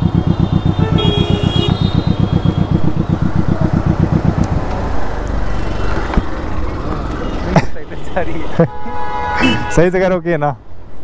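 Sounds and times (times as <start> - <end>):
motorcycle engine running: 0.0 - 7.5
vehicle horn: 0.1 - 3.1, 7.3 - 10.0.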